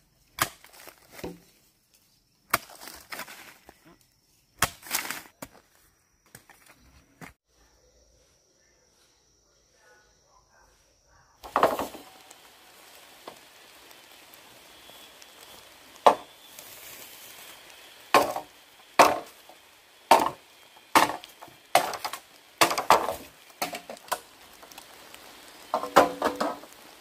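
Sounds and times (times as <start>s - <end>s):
wood chopping blows: 11.4s - 12.5s, 14.7s - 16.7s, 17.5s - 24.9s, 25.6s - 26.8s.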